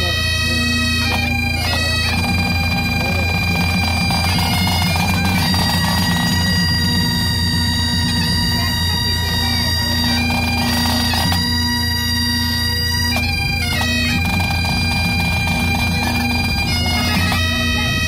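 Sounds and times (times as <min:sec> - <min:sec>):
bagpipes playing: 0:00.0 - 0:18.0.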